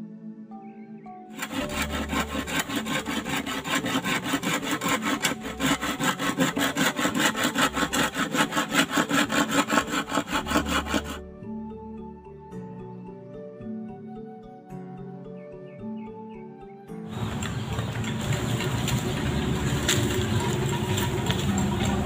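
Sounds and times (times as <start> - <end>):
hand saw cutting bamboo: 1.4 - 11.2, 17.1 - 22.0.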